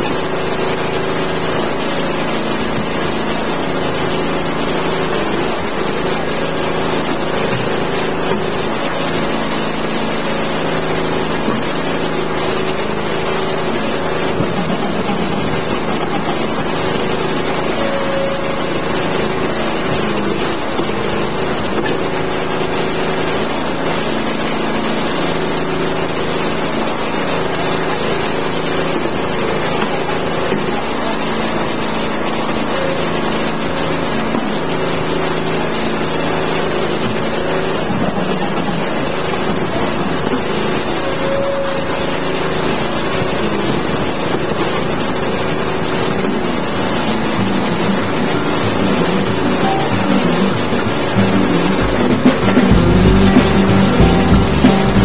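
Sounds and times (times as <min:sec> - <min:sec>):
small engine running steadily: 0:00.0 - 0:41.1.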